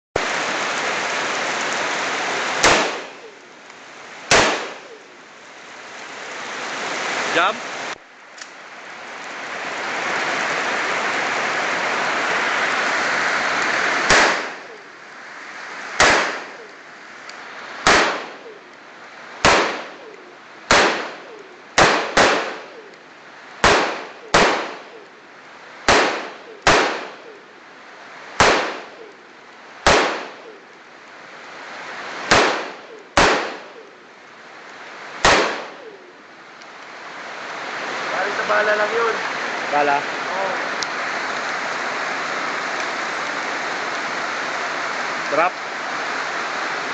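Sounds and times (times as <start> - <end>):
rain hissing: 0.2 - 46.9
rifle shots with ringing echo: 2.6 - 3.3, 4.3 - 5.0, 14.1 - 14.8, 16.0 - 16.6, 17.8 - 18.6, 19.4 - 20.1, 20.7 - 22.9, 23.6 - 25.0, 25.9 - 27.4, 28.4 - 29.1, 29.8 - 30.6, 32.3 - 33.9, 35.2 - 36.0.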